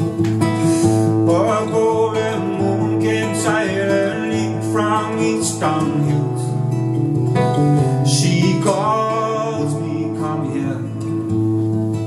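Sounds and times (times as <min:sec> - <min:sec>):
acoustic guitar: 0:00.0 - 0:12.0
man singing slow song: 0:00.8 - 0:06.8, 0:07.8 - 0:11.3.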